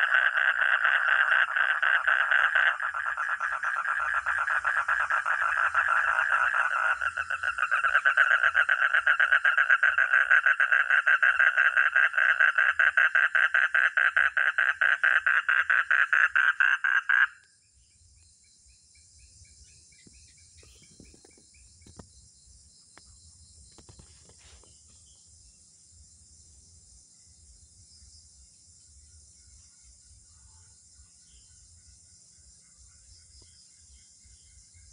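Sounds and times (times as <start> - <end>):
frog pulsed trill: 0.0 - 17.5.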